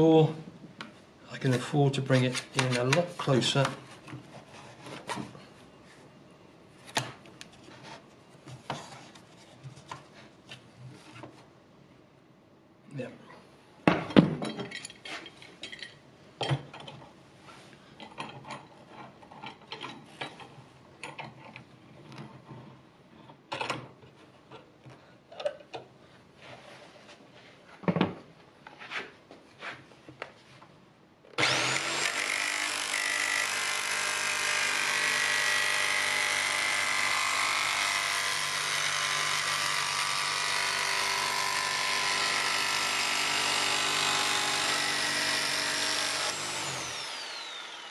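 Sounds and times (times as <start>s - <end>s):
electric jigsaw cutting: 31.4s - 47.9s.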